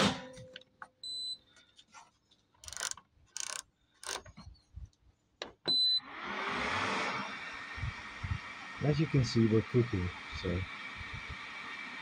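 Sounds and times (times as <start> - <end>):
microwave control panel beeps: 1.0 - 1.5, 5.7 - 6.1.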